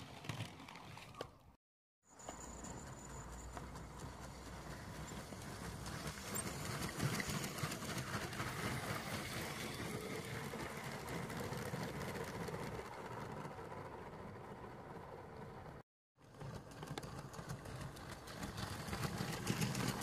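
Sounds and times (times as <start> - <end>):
toy train rattling on plastic track: 2.3 - 12.9, 16.3 - 20.0.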